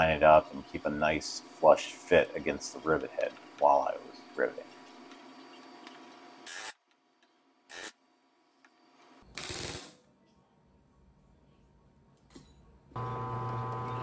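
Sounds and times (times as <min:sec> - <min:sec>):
masking tape tearing off metal: 0:07.7 - 0:08.0.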